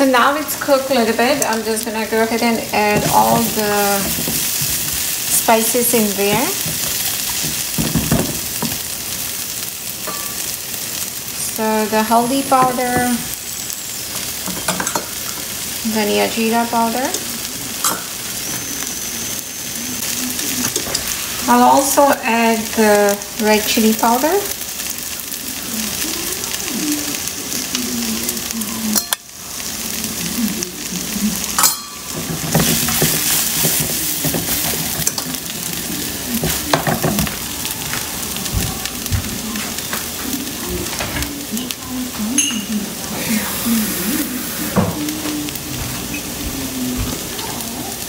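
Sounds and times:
vegetables sizzling in oil: 0:00.0 - 0:48.0
spoon scraping a pan: 0:31.5 - 0:37.4.

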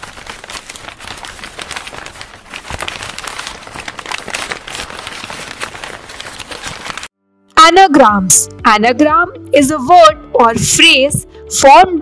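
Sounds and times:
dense crackling rustle: 0:00.0 - 0:07.1.

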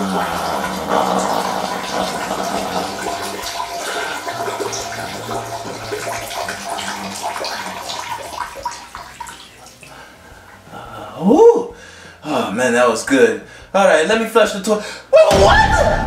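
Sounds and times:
urine stream splashing in toilet: 0:00.0 - 0:10.6.

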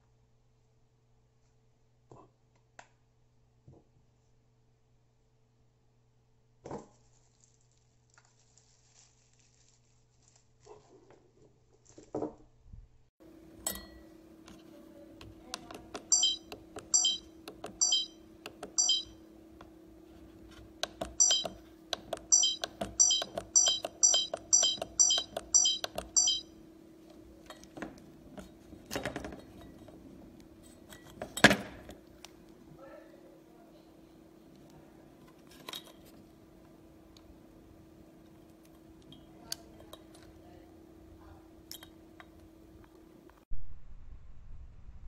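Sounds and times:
low steady hum: 0:13.2 - 0:45.0
keypad beeping: 0:15.9 - 0:19.2, 0:20.8 - 0:26.6.

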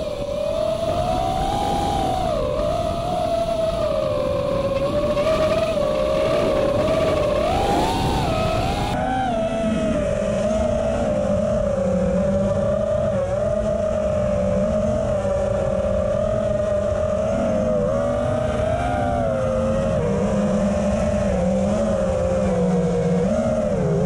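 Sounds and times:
drone motors and propellers whining: 0:00.0 - 0:24.0.

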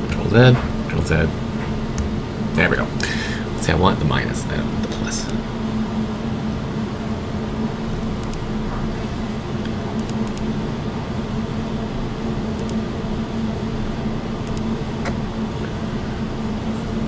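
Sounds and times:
low machine hum with hiss: 0:00.0 - 0:17.0
faint clicks: 0:14.4 - 0:14.7.

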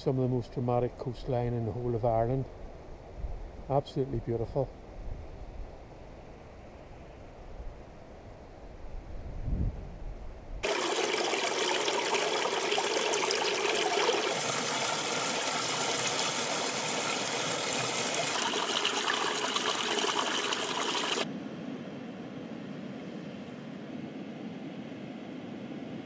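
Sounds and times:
stream splashing over rocks: 0:10.6 - 0:21.3.

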